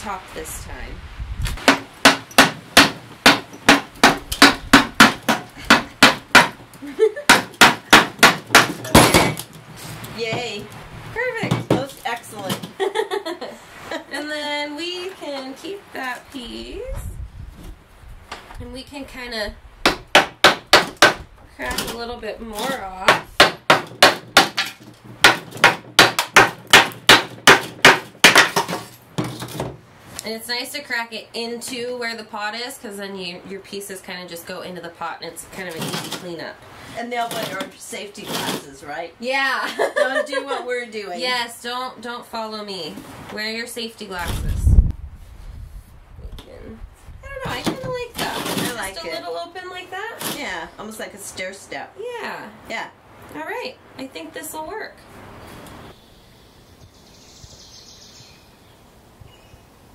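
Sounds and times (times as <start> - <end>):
hammer knocking on clay pot: 1.6 - 6.6, 7.3 - 9.4, 19.8 - 21.2, 23.0 - 29.3.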